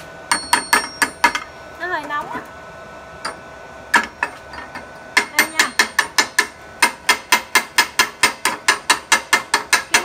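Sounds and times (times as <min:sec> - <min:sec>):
chipping hammer tapping metal: 0:00.3 - 0:01.5, 0:03.3 - 0:10.0.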